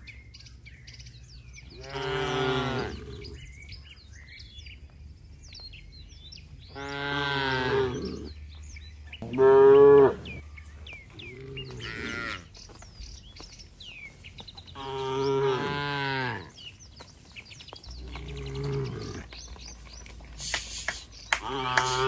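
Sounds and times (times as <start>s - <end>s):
birds chirping: 0.0s - 22.0s
cattle mooing: 1.8s - 3.4s, 6.7s - 8.4s, 9.2s - 10.4s, 11.3s - 12.5s, 14.8s - 16.5s, 18.0s - 19.3s, 21.4s - 22.0s.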